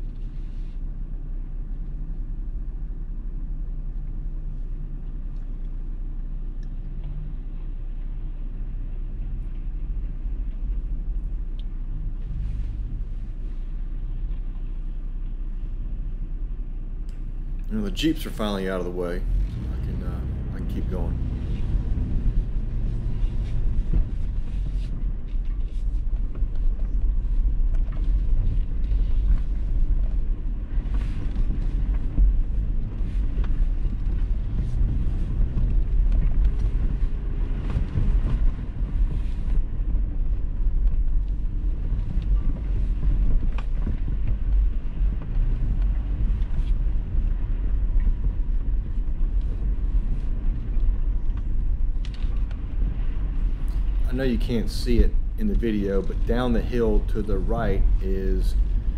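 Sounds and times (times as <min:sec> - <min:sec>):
car rumbling on gravel: 0:17.7 - 0:58.9.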